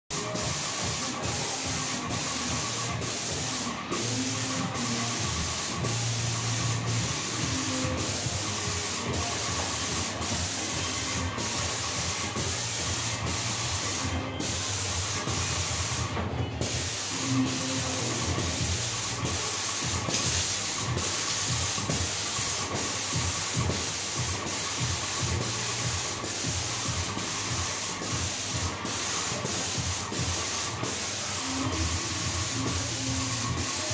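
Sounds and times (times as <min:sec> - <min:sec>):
paint sprayer hissing: 0:00.1 - 0:33.9.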